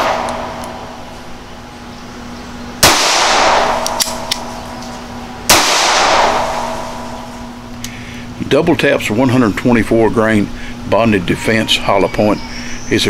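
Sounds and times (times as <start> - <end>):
gunshots: 0.0 - 0.6, 2.8 - 4.3, 5.5 - 7.2.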